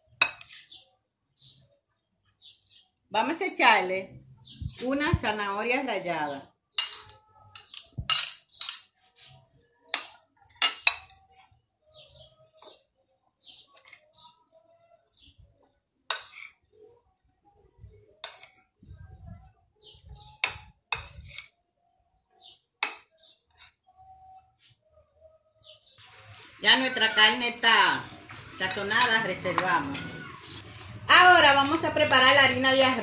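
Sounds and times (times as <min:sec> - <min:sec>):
spoon clinking on ceramic: 0:06.8 - 0:08.9.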